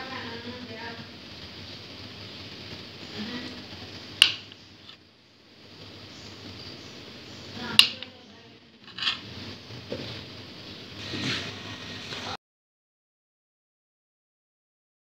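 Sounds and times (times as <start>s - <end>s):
knife slicing through cake: 8.9s - 9.3s.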